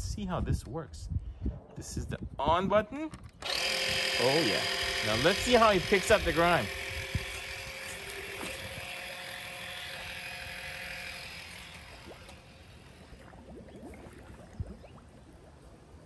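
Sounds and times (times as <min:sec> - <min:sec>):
pool vacuum motor hum: 0:03.3 - 0:15.7
faint water sounds: 0:07.9 - 0:16.0.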